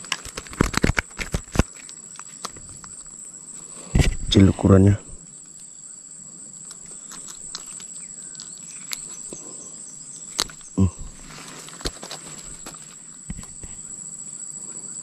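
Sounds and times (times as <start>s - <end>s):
insects chirring: 0.0s - 15.0s
low voice sound: 4.2s - 5.2s, 10.8s - 11.2s.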